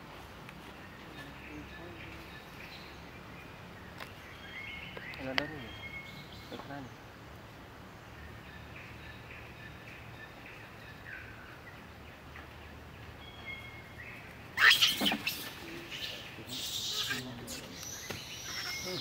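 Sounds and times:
forest ambience: 0.0s - 19.0s
high bird chirps: 14.6s - 19.0s.

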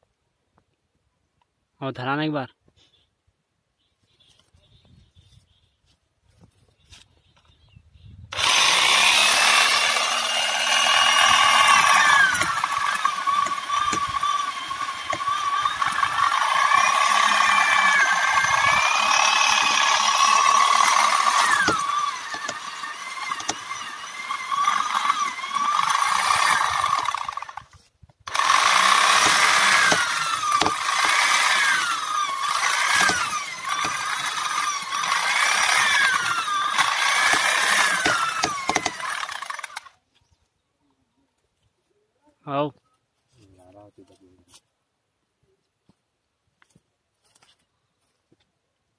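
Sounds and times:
electric chainsaw cutting wood: 8.3s - 40.0s.

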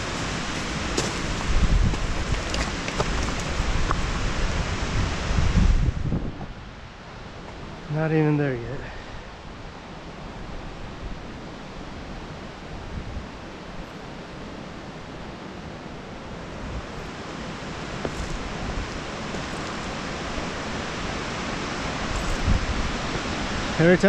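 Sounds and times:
falling water rushing: 0.0s - 5.6s, 14.2s - 24.0s
wind rumble on microphone: 0.0s - 7.9s, 8.8s - 24.0s.

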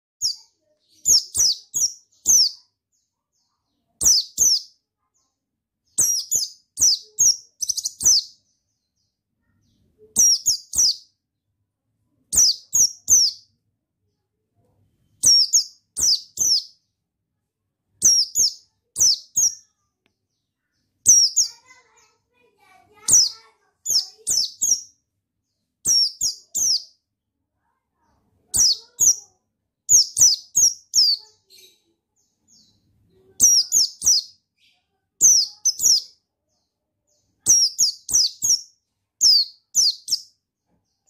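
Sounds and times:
bird high chirps: 0.2s - 11.2s, 12.2s - 14.2s, 14.9s - 16.9s, 17.9s - 41.0s.

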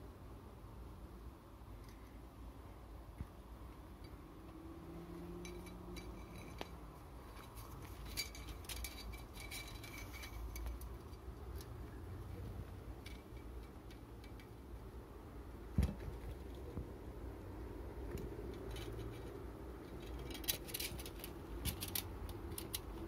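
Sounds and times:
low steady hum: 0.0s - 23.0s
metallic clicks and clinks: 5.2s - 11.8s, 18.2s - 23.0s
thump: 15.7s - 16.2s.

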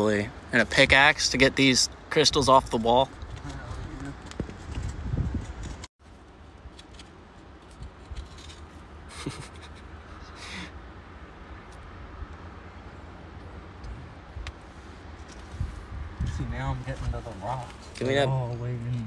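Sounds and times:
stick scraping in soil: 6.6s - 8.9s.

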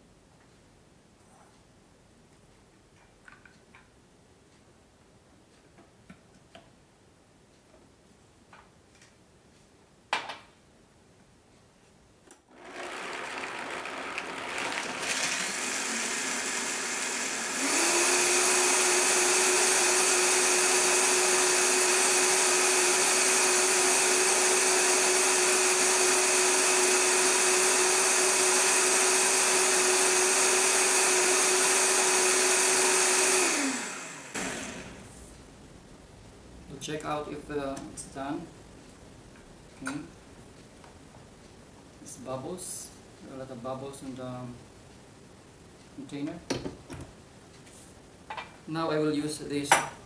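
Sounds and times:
blender motor running: 12.5s - 35.1s.

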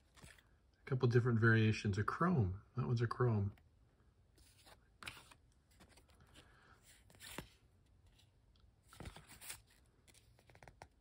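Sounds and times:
cards rustling and tapping: 0.0s - 0.5s, 4.4s - 11.0s
cards scraping: 4.4s - 7.6s.

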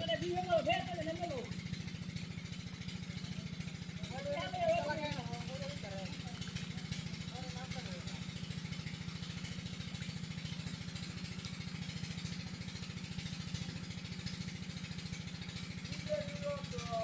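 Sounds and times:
small engine chugging: 0.0s - 17.0s.

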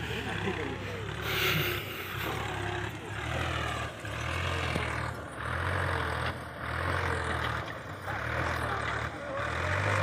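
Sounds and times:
tractor diesel engine droning: 0.0s - 10.0s.

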